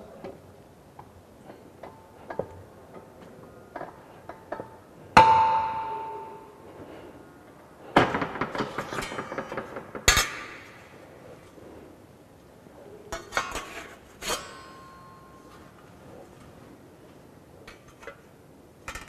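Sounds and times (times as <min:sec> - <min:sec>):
steel parts clanking: 0:13.2 - 0:15.8.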